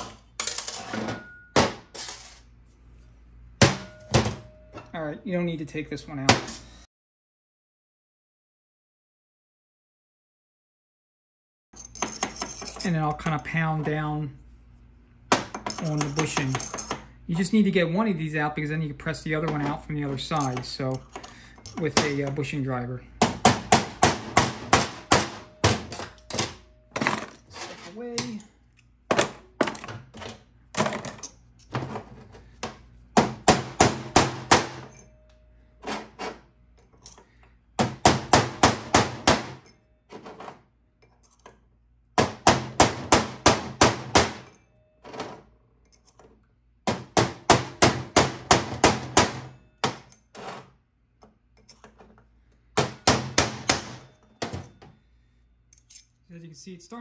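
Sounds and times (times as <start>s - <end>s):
hammer striking metal punch: 3.6s - 4.5s, 23.2s - 26.6s, 46.9s - 50.2s, 52.8s - 54.7s.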